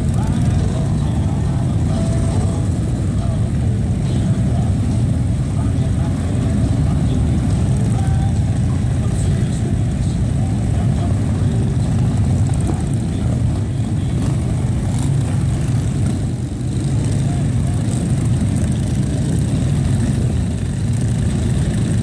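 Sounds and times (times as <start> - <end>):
motorcycles idling: 0.0 - 22.0.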